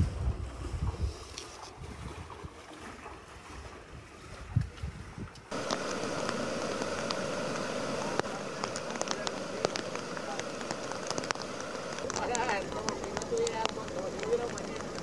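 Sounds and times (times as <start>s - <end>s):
floodwater rushing: 0.0s - 15.0s
wind buffeting microphone: 0.0s - 15.0s
sharp clicks: 5.5s - 15.0s.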